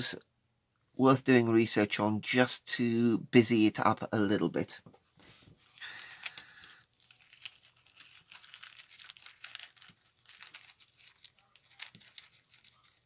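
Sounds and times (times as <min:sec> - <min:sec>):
plastic bag crinkling: 0:05.7 - 0:13.0.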